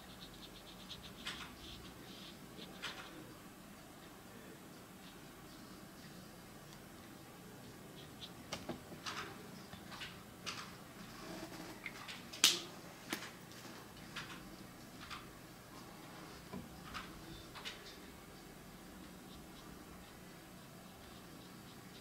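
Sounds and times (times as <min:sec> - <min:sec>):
brush pen scratching on paper: 0:00.0 - 0:03.1.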